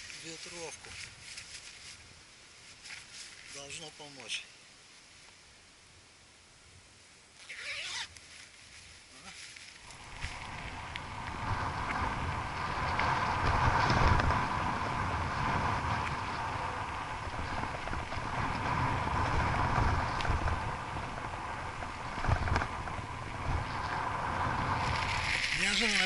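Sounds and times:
tyres rumbling on rough asphalt: 0:09.8 - 0:26.0
wind buffeting microphone: 0:09.8 - 0:26.0
bike rattling over bumps: 0:09.9 - 0:26.0.

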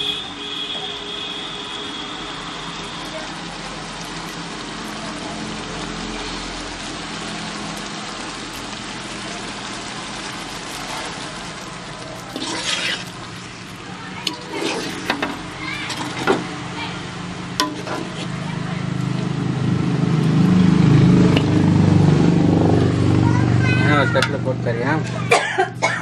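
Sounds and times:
syrup simmering with a hiss: 0:01.6 - 0:22.5
ladle scraping a pan: 0:12.1 - 0:16.5, 0:17.6 - 0:18.5.

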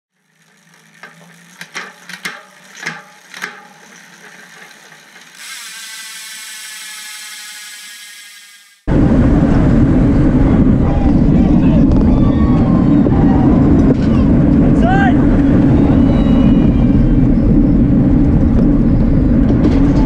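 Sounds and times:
bicycle freewheel ratchet clicking: 0:00.1 - 0:08.9.

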